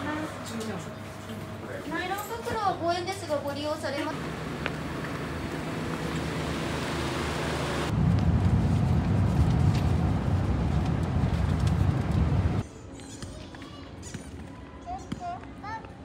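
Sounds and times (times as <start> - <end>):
vehicle rumble with road noise: 4.1 - 12.6.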